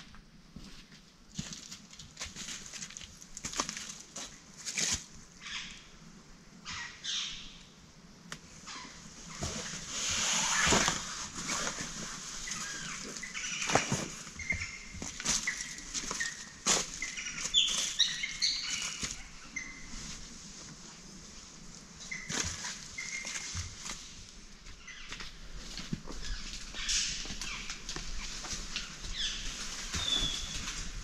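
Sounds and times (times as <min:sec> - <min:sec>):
dry leaves rustling: 0:01.3 - 0:05.6, 0:08.7 - 0:31.0
footsteps: 0:22.3 - 0:31.0.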